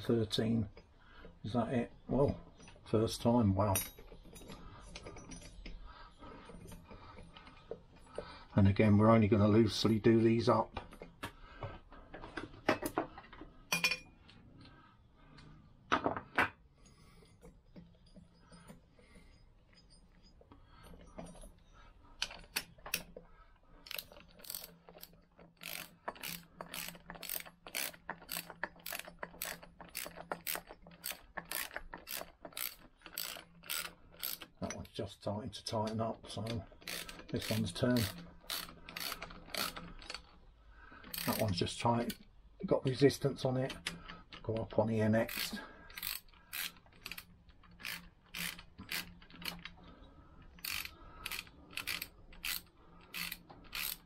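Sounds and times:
socket ratchet clicking: 0:23.9 - 0:34.6, 0:36.8 - 0:40.2, 0:41.1 - 0:41.4, 0:45.2 - 0:49.6, 0:50.5 - 0:54.0.

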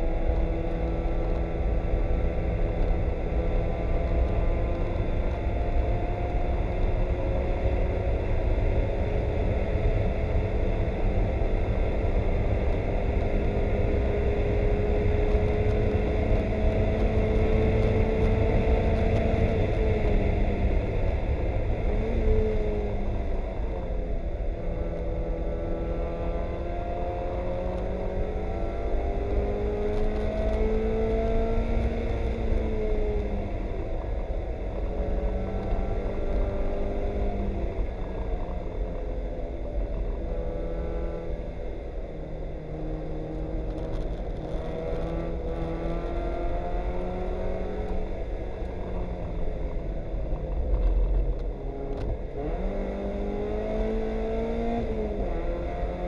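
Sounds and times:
race car engine revving: 0:50.6 - 0:56.0.

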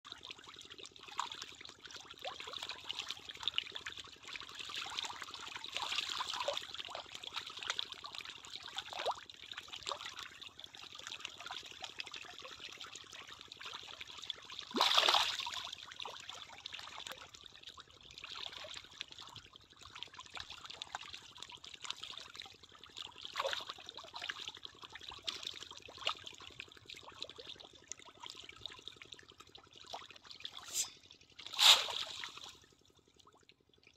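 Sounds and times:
fish splashing at water surface: 0:14.6 - 0:15.6, 0:30.5 - 0:32.8.

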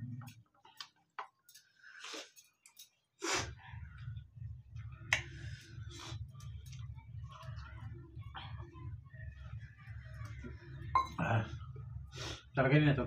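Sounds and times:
breathing through the nose: 0:01.7 - 0:02.5, 0:03.2 - 0:03.7
steady low hum: 0:03.5 - 0:13.0.

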